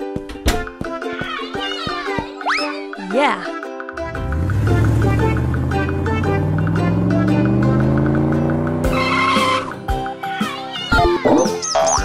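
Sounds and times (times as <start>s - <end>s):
bouncy cartoon music: 0.0s - 12.0s
cartoon glide sound effects: 4.6s - 9.8s.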